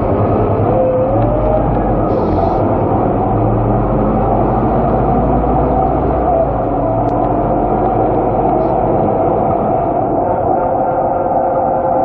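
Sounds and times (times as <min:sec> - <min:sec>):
bus diesel engine drone: 0:00.0 - 0:12.0
road noise hiss: 0:01.9 - 0:05.6.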